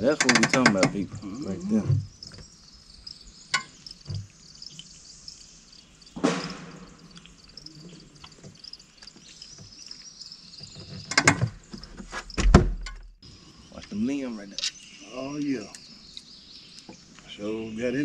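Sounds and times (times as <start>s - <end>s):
high-pitched insect chorus: 0.0s - 18.0s
loud thump: 6.2s - 7.2s, 12.4s - 13.0s.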